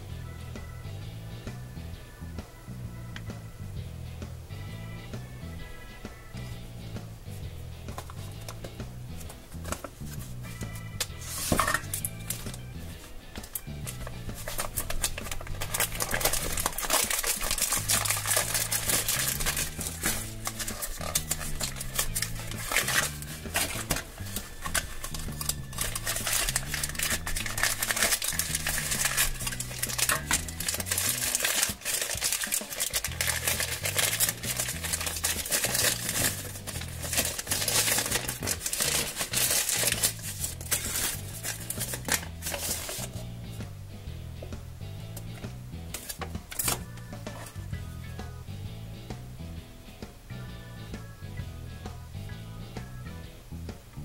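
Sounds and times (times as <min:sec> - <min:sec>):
background music with bass line: 0:00.0 - 0:54.0
plastic packaging crinkling: 0:11.1 - 0:43.2.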